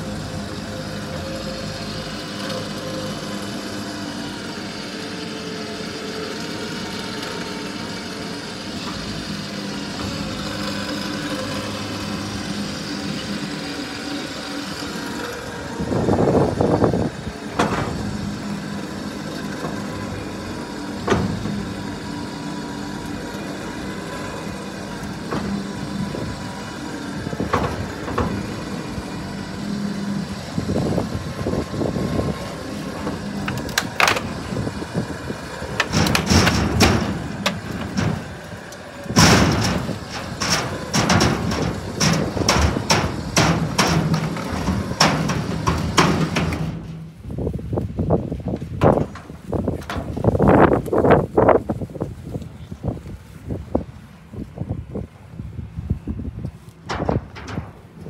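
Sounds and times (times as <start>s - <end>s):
electric winch motor hum: 0.0s - 51.7s
metal knocks: 24.4s - 29.8s, 35.7s - 47.3s, 56.8s - 58.0s
metal clanks and scrapes: 30.7s - 47.3s, 56.7s - 58.0s.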